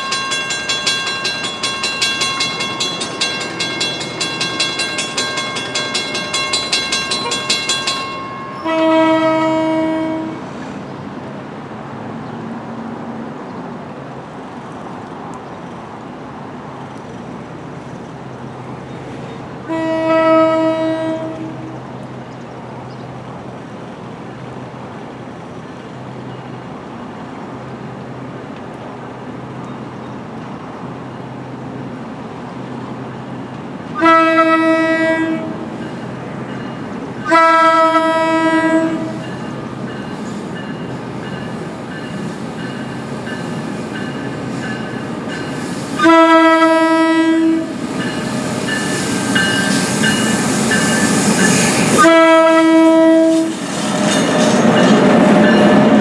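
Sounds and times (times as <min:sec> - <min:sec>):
train rumbling: 0:00.0 - 0:56.0
train horn blasts: 0:08.3 - 0:10.5, 0:19.6 - 0:21.8, 0:34.0 - 0:35.6, 0:37.2 - 0:39.3, 0:46.0 - 0:47.8, 0:51.8 - 0:53.6.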